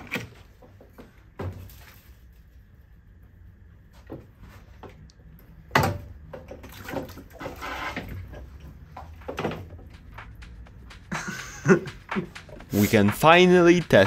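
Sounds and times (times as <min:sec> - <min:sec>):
water sloshing and bubbling: 0:03.7 - 0:10.0.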